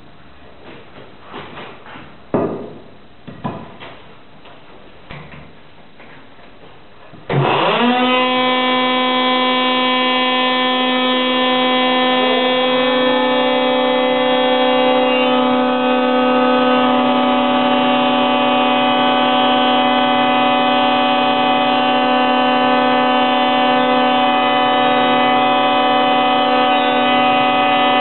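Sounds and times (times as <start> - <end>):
spindle moulder whining: 7.3 - 28.0.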